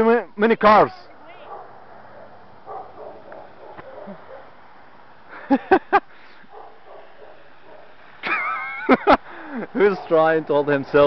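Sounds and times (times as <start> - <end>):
dog barking: 1.4 - 4.6, 6.5 - 8.0.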